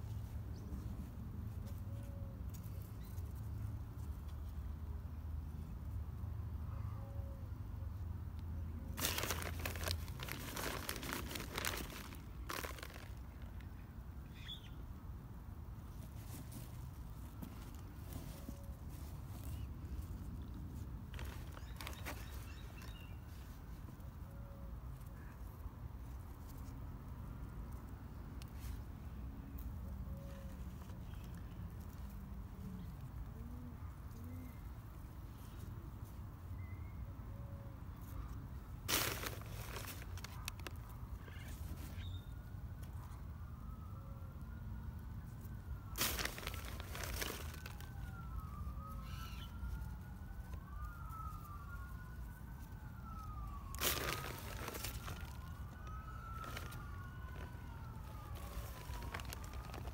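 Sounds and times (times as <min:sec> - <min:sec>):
soil rustling and crackling: 0:08.8 - 0:14.8, 0:15.7 - 0:24.2, 0:29.5 - 0:33.2, 0:38.1 - 0:42.9, 0:45.2 - 0:59.9.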